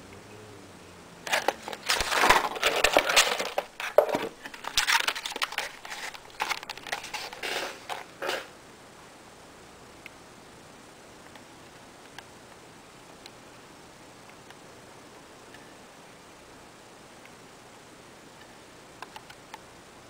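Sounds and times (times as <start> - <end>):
plastic blister tray crinkling: 1.3 - 8.5.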